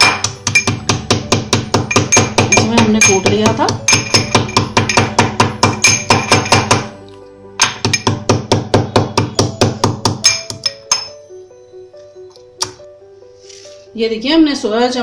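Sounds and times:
metal pestle pounding in mortar: 0.0 - 7.0, 7.6 - 11.2.

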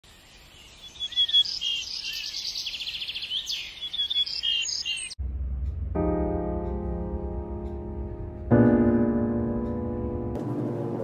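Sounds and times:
songbirds chirping and trilling: 0.0 - 5.2
low hum: 5.1 - 11.0.

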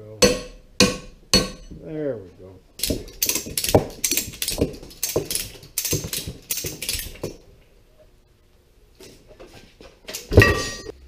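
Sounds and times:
hammer striking steel: 0.2 - 1.8, 10.4 - 11.0
metallic clicks and rattles: 2.8 - 7.4.

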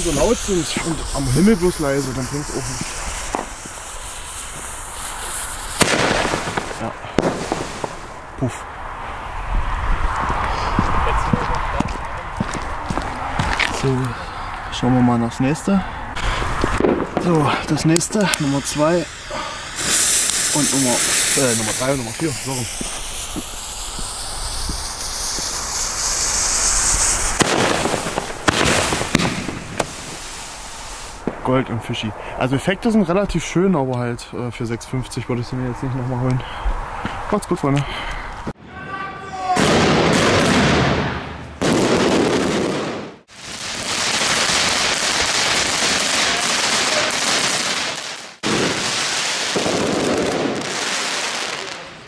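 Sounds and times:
fuses hissing: 0.0 - 8.3, 17.6 - 31.2
firework tubes popping: 0.0 - 8.6, 16.2 - 31.5, 39.6 - 52.0.

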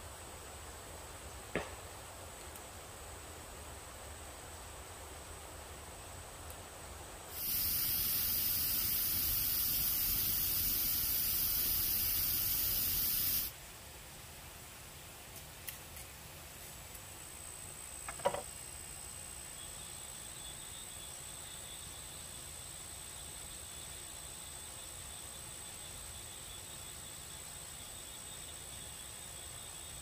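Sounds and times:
wood fire hissing: 0.2 - 13.6
light knock: 1.6 - 1.8, 18.1 - 18.4.

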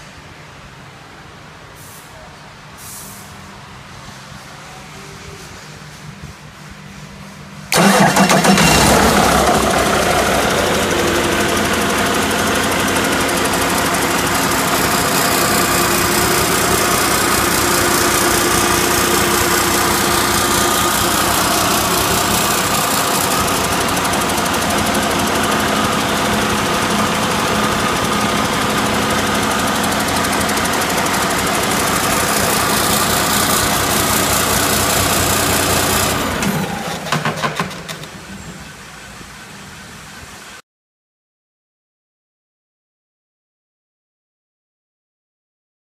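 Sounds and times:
diesel engine idling: 7.7 - 38.1.

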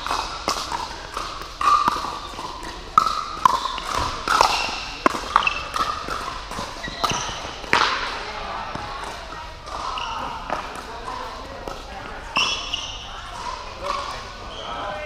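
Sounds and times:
paddles striking plastic ball: 0.0 - 8.0
ball bouncing on court: 0.0 - 14.2.

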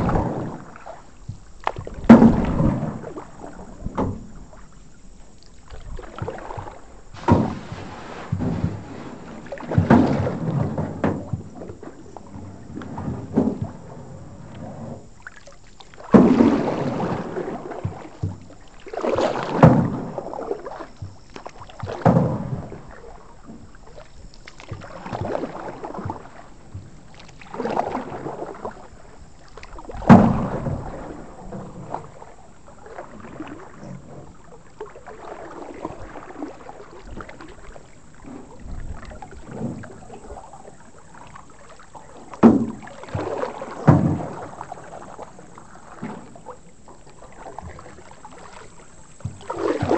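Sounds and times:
paddle knocking on metal canoe: 0.0 - 4.6, 5.9 - 13.9, 24.6 - 28.9, 35.3 - 49.9
paddles splashing through water: 0.0 - 49.9.

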